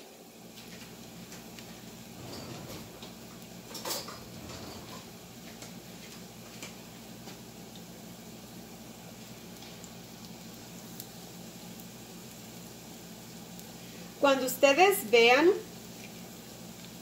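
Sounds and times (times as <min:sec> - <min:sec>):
patties frying in hot oil: 0:00.0 - 0:17.0
oil popping and crackling: 0:09.0 - 0:13.8.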